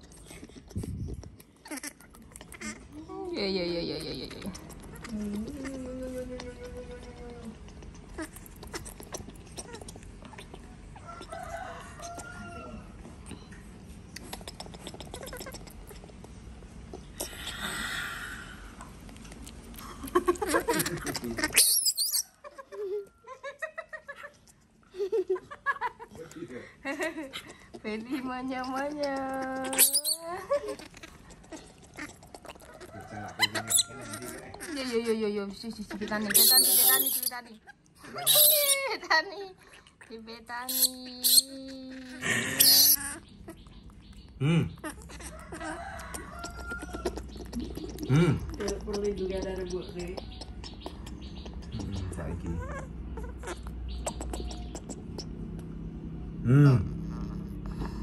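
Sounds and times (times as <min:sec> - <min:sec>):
baby monkey squeaks and chirps: 0:01.6 - 0:03.0, 0:14.1 - 0:16.0, 0:20.4 - 0:22.7, 0:27.4 - 0:39.1, 0:40.3 - 0:55.7
baby monkey wavering call: 0:20.7 - 0:22.4, 0:29.6 - 0:30.8, 0:32.7 - 0:35.2, 0:36.2 - 0:37.5, 0:38.2 - 0:38.9, 0:40.6 - 0:41.8, 0:42.5 - 0:44.2, 0:44.8 - 0:55.3.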